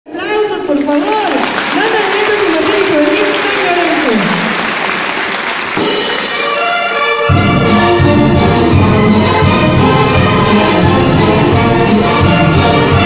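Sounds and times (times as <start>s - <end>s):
applause: 0.6s - 6.4s
drums beating: 2.7s - 6.7s, 7.3s - 13.0s
brass band playing cumbia: 5.7s - 13.0s
tuba: 5.8s - 13.0s.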